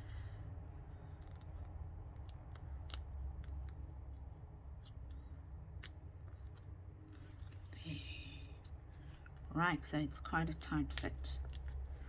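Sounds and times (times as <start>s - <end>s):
low steady hum: 0.0s - 12.0s
small clicks and crackles: 0.8s - 9.5s.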